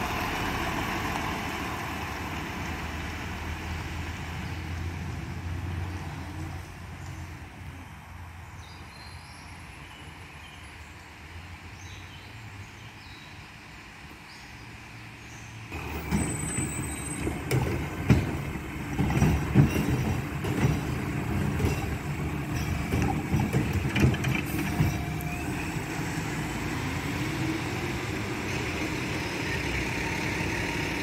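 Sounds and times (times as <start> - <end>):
truck diesel engine running: 0.0 - 4.3, 15.7 - 31.0
bangs and knocks of loader arm: 17.2 - 25.2.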